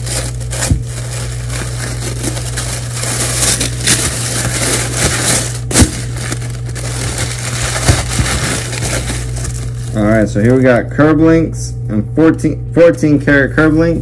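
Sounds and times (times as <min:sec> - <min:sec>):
paper crackling and rustling: 0:00.0 - 0:10.1
steady low hum: 0:00.0 - 0:14.0.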